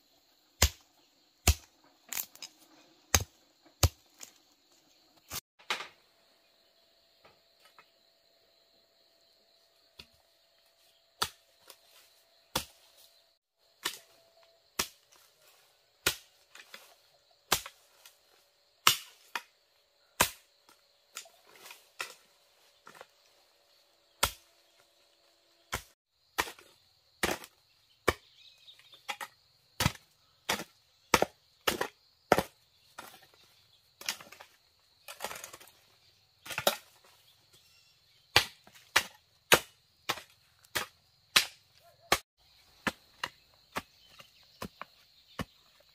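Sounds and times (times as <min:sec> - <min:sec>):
chopping strikes on bamboo: 0:00.6 - 0:02.5, 0:03.1 - 0:04.3, 0:11.2 - 0:11.8, 0:12.5 - 0:12.8, 0:13.8 - 0:14.2, 0:14.8 - 0:15.3, 0:16.0 - 0:16.9, 0:17.5 - 0:18.1, 0:18.8 - 0:19.5, 0:20.2 - 0:22.2, 0:24.2 - 0:24.5, 0:25.7 - 0:28.3, 0:29.1 - 0:33.2, 0:38.3 - 0:42.2.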